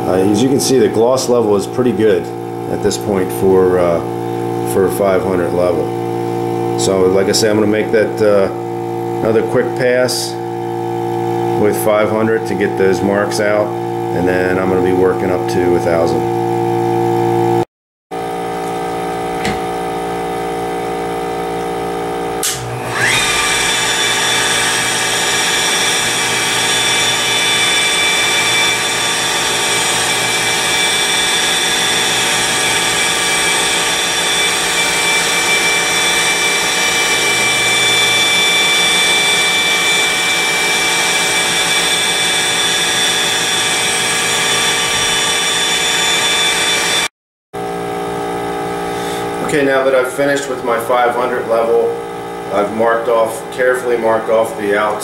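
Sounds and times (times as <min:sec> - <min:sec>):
polisher motor whine: 0:22.4 - 0:47.1.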